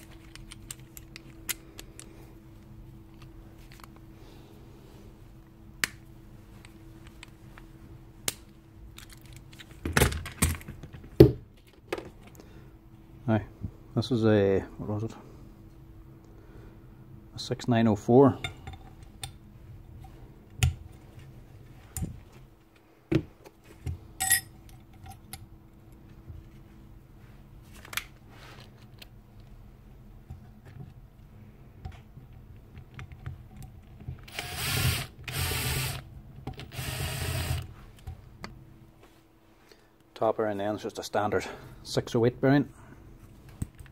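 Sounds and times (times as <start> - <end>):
small power tool running: 34.3 - 36.0, 36.6 - 37.7.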